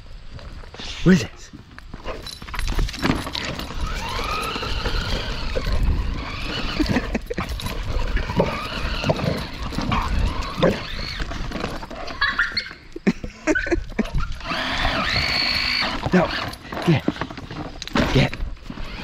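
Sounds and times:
toy car electric motor whining: 3.0s - 13.0s, 13.8s - 19.0s
dog vocalising excitedly: 3.8s - 13.0s.

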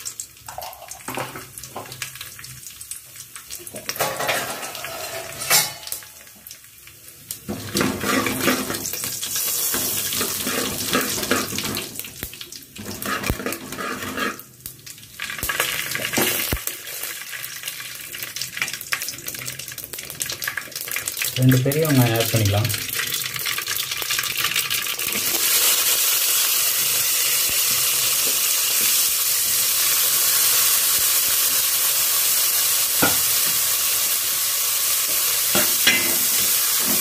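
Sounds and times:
seeds sizzling in hot oil: 0.0s - 37.0s
spoon scraping against pot: 13.0s - 14.4s.

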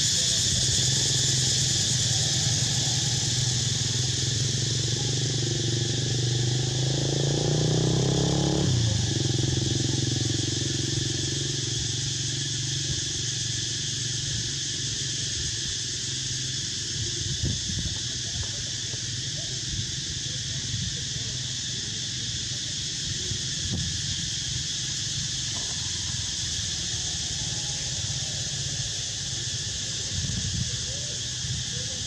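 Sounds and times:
insects buzzing: 0.0s - 32.0s
motorbike engine passing: 0.2s - 13.2s.

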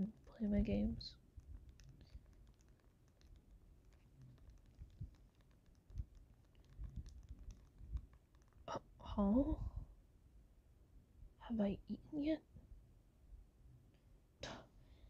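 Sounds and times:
game console buttons clicking: 1.6s - 8.6s.

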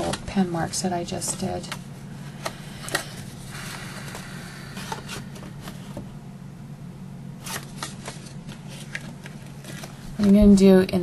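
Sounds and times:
steady low hum: 0.0s - 11.0s
paper box rustling and sliding: 7.4s - 10.3s.

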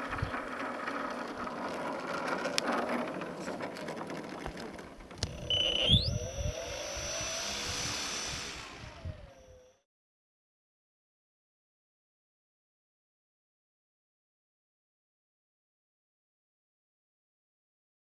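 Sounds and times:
model plane motor whir: 0.0s - 9.8s
high whine rising in pitch: 5.2s - 9.8s.

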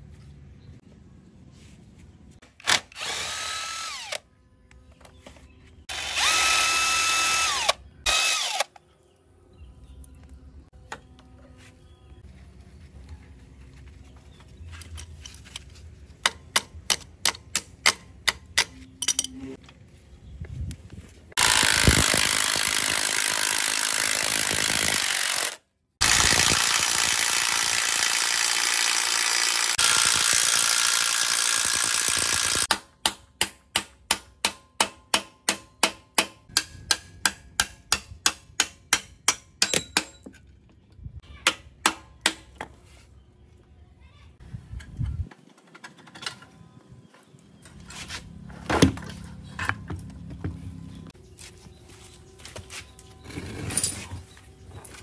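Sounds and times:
power tool running: 2.6s - 4.2s, 5.9s - 8.8s, 21.4s - 32.7s.

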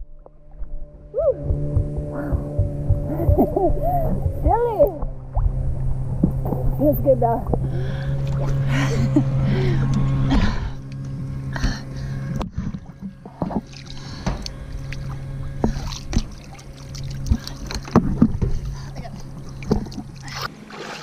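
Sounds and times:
low hum: 0.0s - 21.0s
water knocking against camera: 1.5s - 6.8s
water sloshing and splashing: 4.1s - 9.2s, 10.0s - 21.0s.

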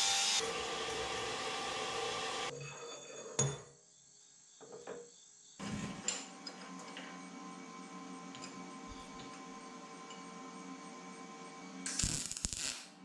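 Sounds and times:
metal-cutting bandsaw running: 0.0s - 2.5s.

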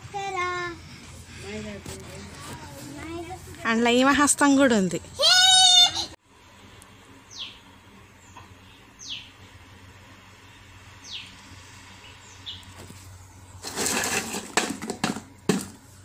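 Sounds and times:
bird calling: 7.3s - 7.6s.

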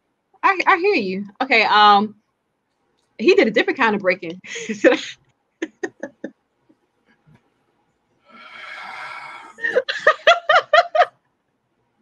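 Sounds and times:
people laughing: 9.6s - 11.1s.

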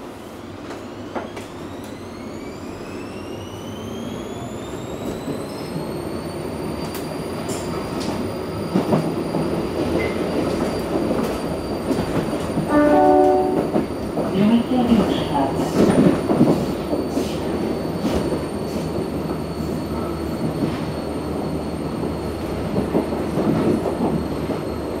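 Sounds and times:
train drive whine: 0.0s - 25.0s
train running noise: 0.0s - 25.0s.

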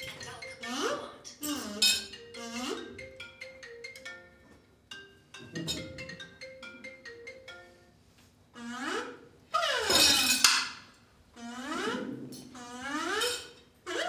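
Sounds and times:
xylophone-like mallet melody: 0.0s - 8.2s.

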